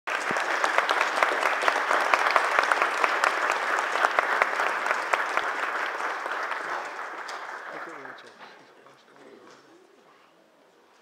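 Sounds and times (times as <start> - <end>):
audience applauding: 0.1 - 8.8.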